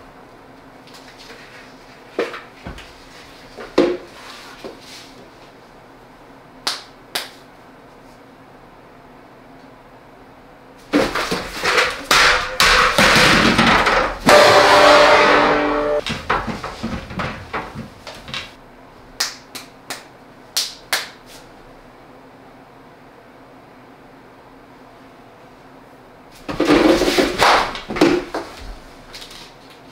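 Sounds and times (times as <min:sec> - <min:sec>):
rapid loud knocks and slaps: 0:10.9 - 0:18.6, 0:26.5 - 0:28.8.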